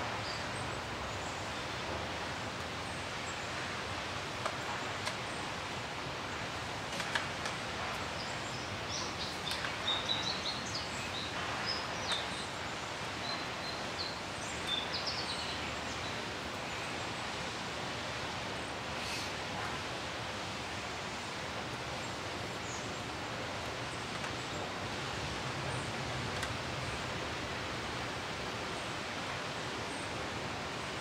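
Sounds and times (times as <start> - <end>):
outdoor background hiss: 0.0 - 31.0
small birds chirping: 7.8 - 17.0.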